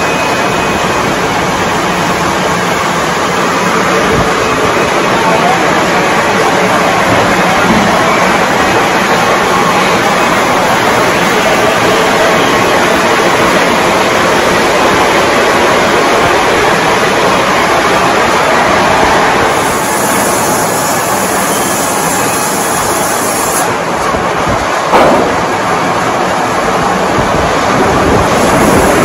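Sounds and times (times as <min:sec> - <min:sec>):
sawmill machinery running: 0:00.0 - 0:29.0
sharp knock: 0:24.9 - 0:25.5.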